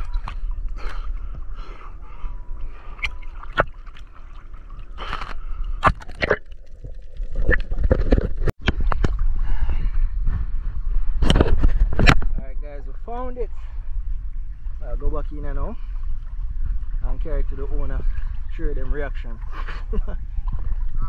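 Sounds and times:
seawater sloshing and splashing: 0:00.0 - 0:08.5
low rumble of water on microphone: 0:00.0 - 0:21.0.

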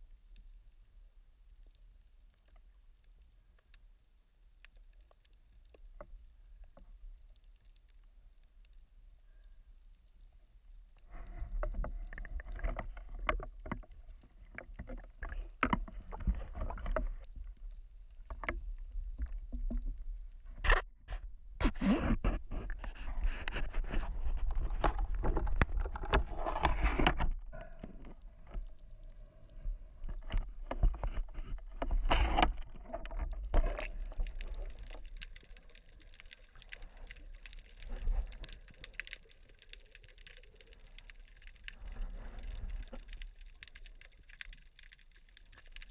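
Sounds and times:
small knocks and clicks: 0:11.5 - 0:17.3.

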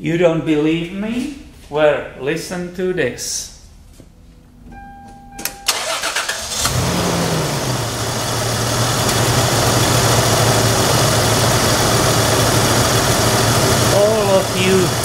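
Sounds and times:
car engine idling: 0:05.6 - 0:15.0
starter cranking engine: 0:05.7 - 0:07.4.

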